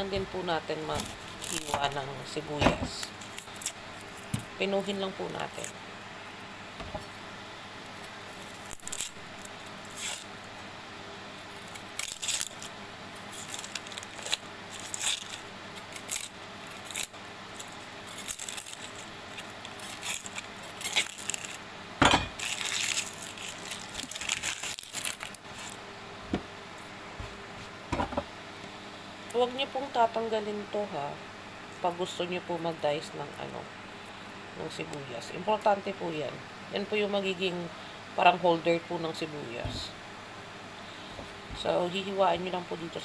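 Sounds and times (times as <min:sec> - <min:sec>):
onion skin crackling: 0:00.0 - 0:06.6, 0:07.8 - 0:10.6, 0:11.3 - 0:25.8.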